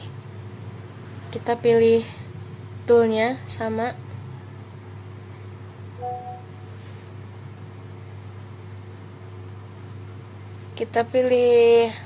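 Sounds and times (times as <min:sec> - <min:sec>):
low background hum: 0:00.0 - 0:12.0
faint two-note tone: 0:06.0 - 0:06.6.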